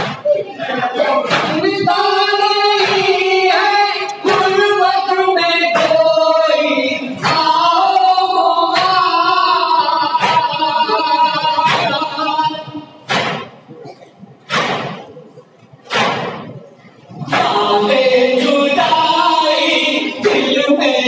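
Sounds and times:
men chanting into microphone: 0.0 - 13.0, 17.1 - 21.0
chest-beating slaps: 1.3 - 1.6, 10.2 - 10.6, 11.6 - 12.1, 13.1 - 13.6, 14.5 - 15.2, 15.8 - 16.7.

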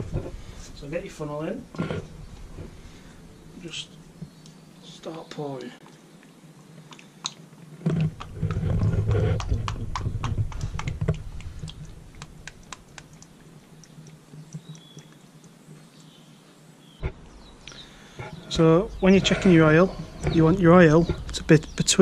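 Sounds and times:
clicks and drips: 9.4 - 16.2.

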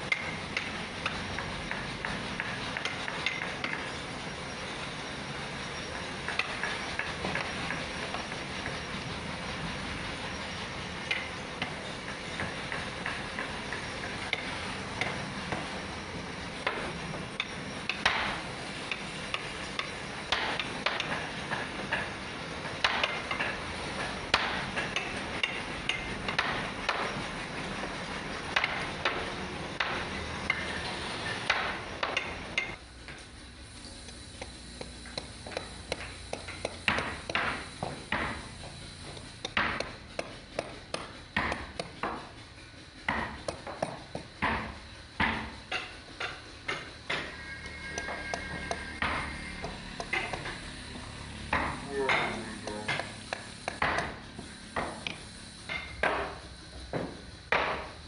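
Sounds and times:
mallet tapping chisel into wood: 51.5 - 54.2.

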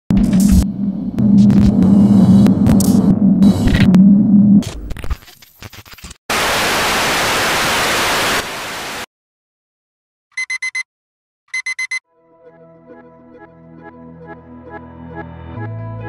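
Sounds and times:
crackling digital glitch noise: 0.1 - 4.0, 4.6 - 9.1
static hiss: 6.3 - 9.1.

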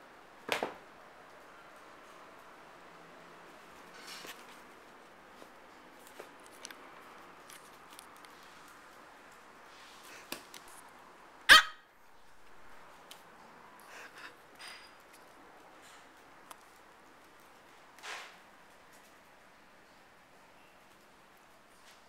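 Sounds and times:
faint clicks and scuffles: 3.5 - 11.0
small dog barking: 11.5 - 11.9.

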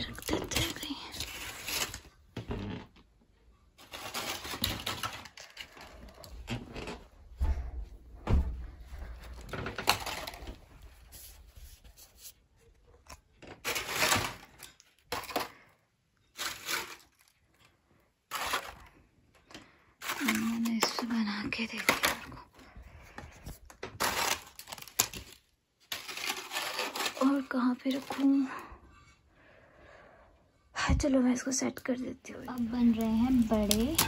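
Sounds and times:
wafers and newspaper crinkling: 3.8 - 6.9, 9.0 - 12.4, 13.0 - 15.7, 16.3 - 17.7, 18.3 - 19.0, 20.0 - 28.7, 32.3 - 34.0.

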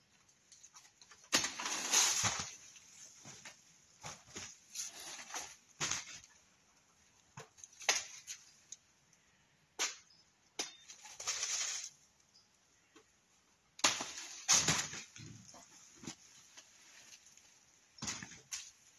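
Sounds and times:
dry leaves rustling: 1.4 - 3.4, 11.0 - 12.0.

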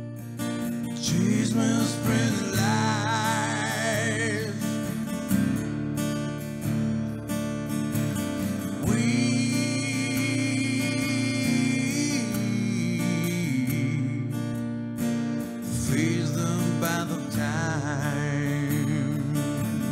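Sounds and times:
acoustic guitar chords: 0.0 - 19.9
man singing: 0.8 - 5.1, 8.8 - 14.4, 15.7 - 19.9.

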